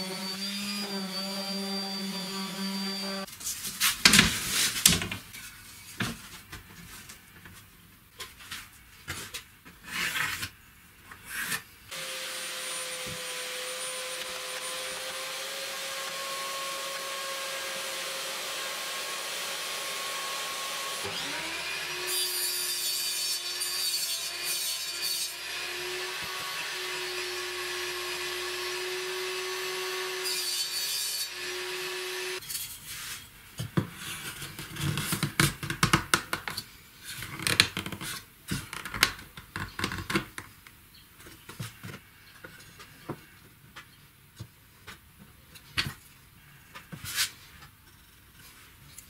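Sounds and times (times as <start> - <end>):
table saw cutting plywood: 0.0 - 3.3, 11.9 - 32.5.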